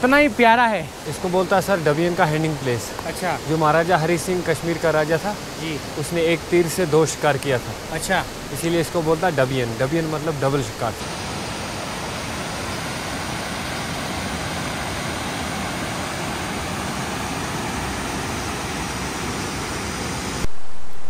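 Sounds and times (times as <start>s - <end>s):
water rushing over rocks: 0.0s - 20.5s.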